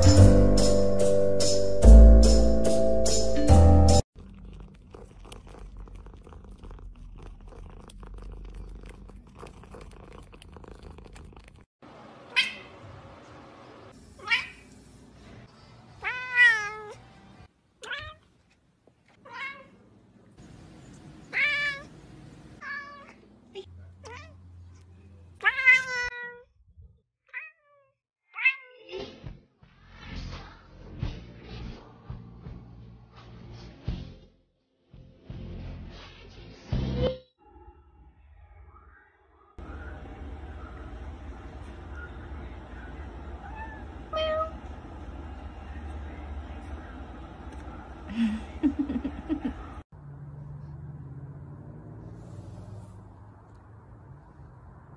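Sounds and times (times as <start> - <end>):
cat meowing: 16.0 - 17.0, 43.4 - 44.7
low steady hum: 39.6 - 49.8.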